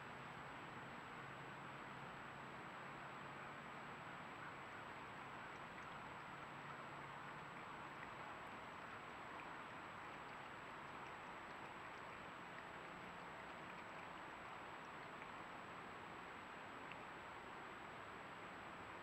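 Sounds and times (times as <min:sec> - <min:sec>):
faint ticks: 0:05.2 - 0:17.2.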